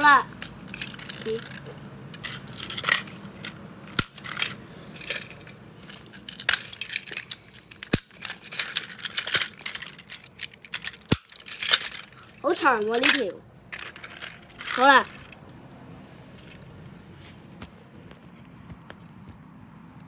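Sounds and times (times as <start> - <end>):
plastic toy trains clacking: 0.0 - 15.4.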